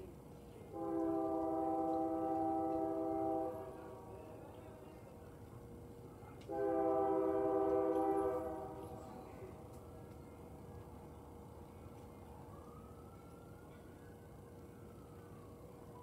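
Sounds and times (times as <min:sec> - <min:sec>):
locomotive air horn blasts: 0:00.7 - 0:04.1, 0:06.5 - 0:09.1.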